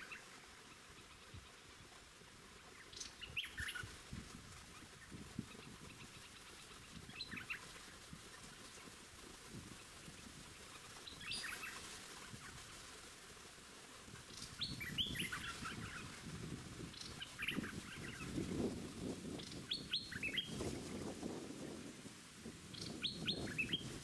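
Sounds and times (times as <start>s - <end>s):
bulbuls chirping: 10.2s - 12.9s, 14.3s - 16.2s, 16.8s - 18.7s, 19.4s - 20.7s.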